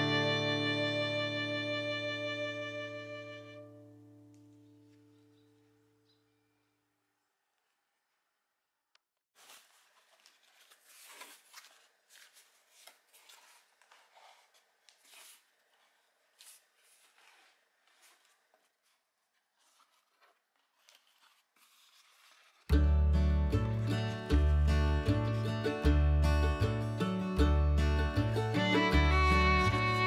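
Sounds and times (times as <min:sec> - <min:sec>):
cardboard rustling and scraping: 0:09.4 - 0:22.7.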